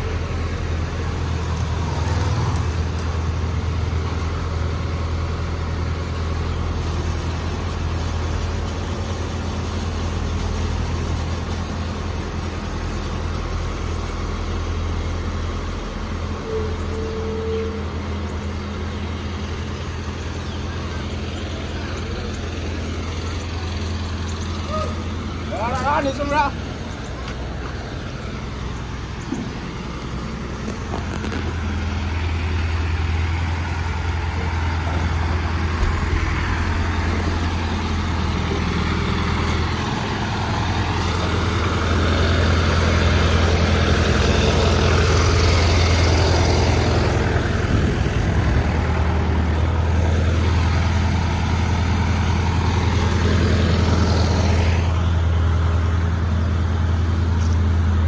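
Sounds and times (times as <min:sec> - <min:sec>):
crane diesel engine running: 0:00.0 - 0:58.0
high mechanical whine: 0:26.1 - 0:41.1.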